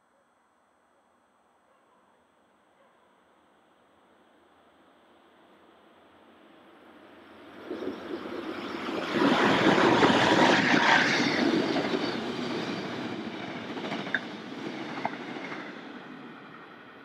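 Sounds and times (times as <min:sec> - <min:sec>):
train wheels rumbling on rails: 0:07.6 - 0:17.0.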